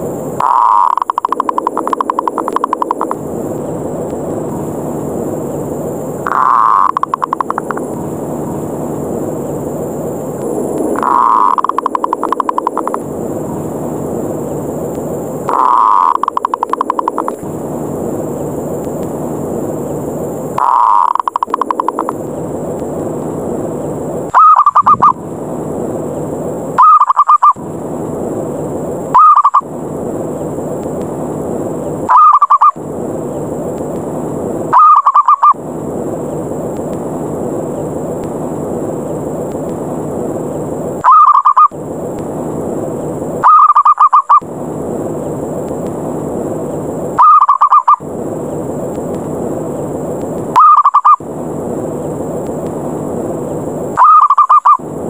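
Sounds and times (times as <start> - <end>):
steady low hiss: 0.0 - 55.0
dove trilling coos: 0.4 - 2.9, 11.0 - 12.6, 15.5 - 17.2, 20.6 - 22.1, 24.3 - 25.2, 26.8 - 27.6, 29.2 - 29.7, 32.1 - 32.8, 34.7 - 35.6, 41.0 - 41.7, 43.4 - 44.4, 47.2 - 48.0, 50.6 - 51.2, 54.0 - 54.8.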